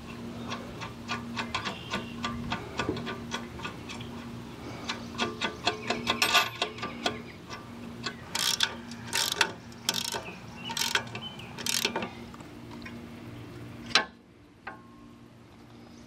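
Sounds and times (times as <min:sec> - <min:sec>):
socket ratchet clicking: 0:08.3 - 0:12.0.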